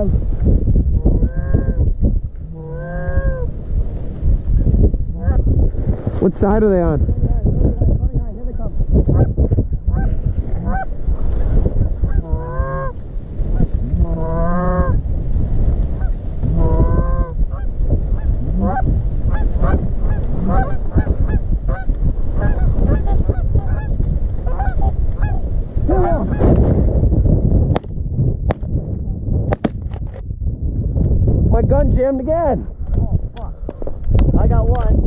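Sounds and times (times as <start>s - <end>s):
geese honking: 2.6s - 3.5s, 9.9s - 10.9s, 12.0s - 13.0s, 13.6s - 15.0s, 16.0s - 26.4s.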